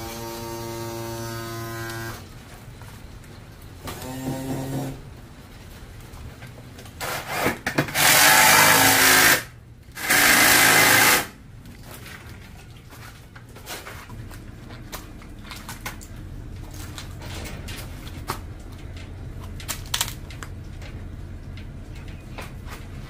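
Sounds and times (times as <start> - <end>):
power drill running: 0.0 - 2.2, 8.0 - 11.3.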